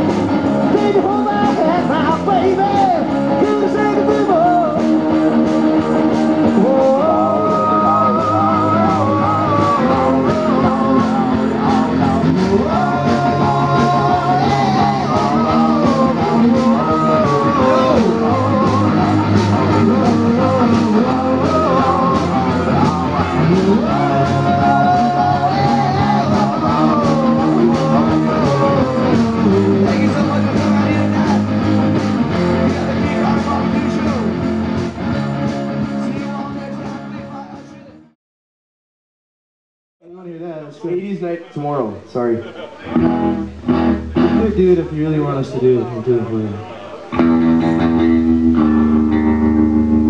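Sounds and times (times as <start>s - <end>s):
steady drum beat: 0.0s - 37.7s
distorted electric guitars: 0.0s - 38.1s, 42.5s - 50.0s.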